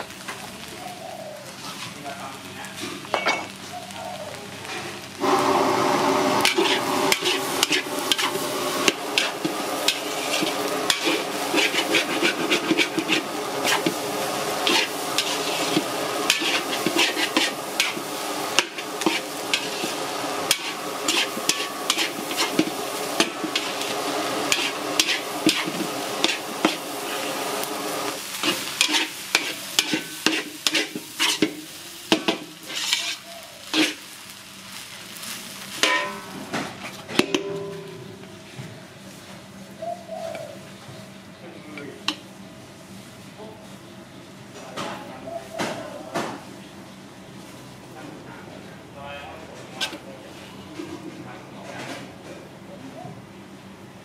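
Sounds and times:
frying sizzle: 0.0 - 51.0
metal spatula scraping wok: 5.2 - 34.1, 35.7 - 38.2, 49.7 - 50.5.

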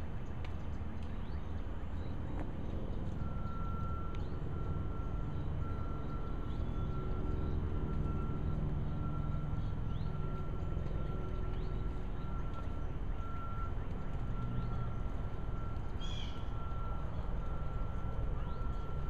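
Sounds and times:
low mechanical rumble: 0.0 - 19.0
rising bird chirps: 16.0 - 16.9.

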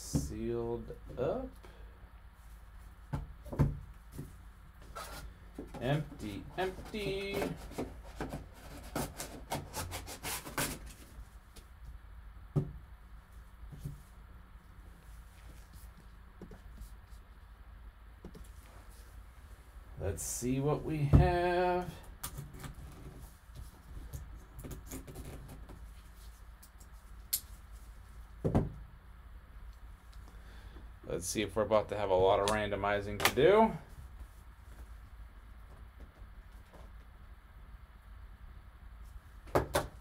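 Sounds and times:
knife scraping cardboard: 6.6 - 11.0.

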